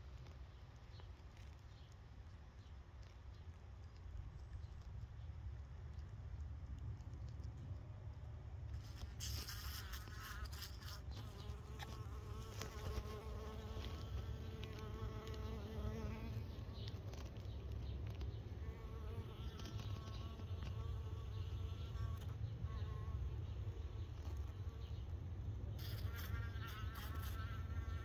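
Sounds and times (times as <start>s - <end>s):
crackling rustle: 0.0s - 22.4s.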